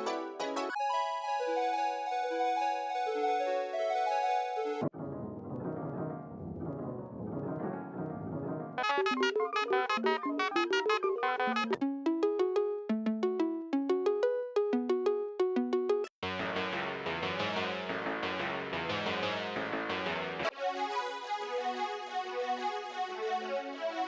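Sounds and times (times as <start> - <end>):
synthesizer playing: 8.8 - 16.1.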